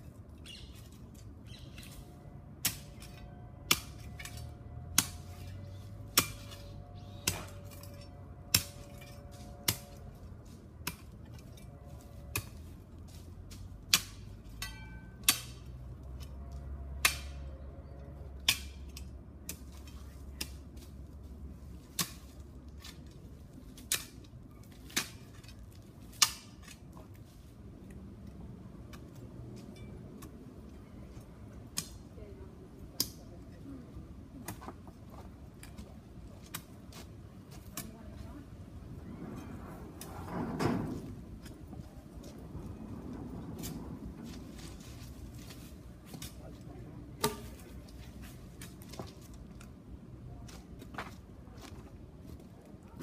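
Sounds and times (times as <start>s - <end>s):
spade striking stony ground: 1.6s - 12.7s, 13.5s - 15.7s, 17.0s - 17.6s, 18.4s - 20.7s, 23.8s - 26.9s, 47.1s - 49.2s.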